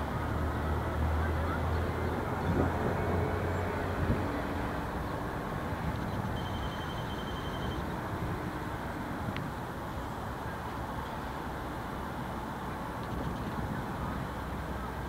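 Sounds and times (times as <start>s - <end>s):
road traffic rumble: 0.0s - 15.0s
faint high thin tone: 6.1s - 7.9s.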